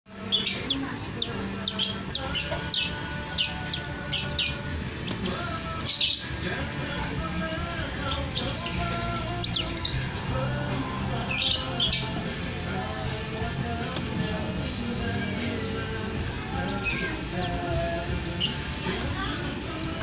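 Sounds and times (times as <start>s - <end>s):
chick peeping: 0.1s - 10.2s.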